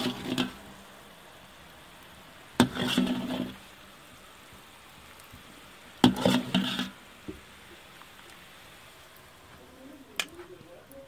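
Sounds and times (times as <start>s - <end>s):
ladle scraping metal pot: 0.0s - 0.6s, 2.6s - 3.7s, 6.0s - 7.1s.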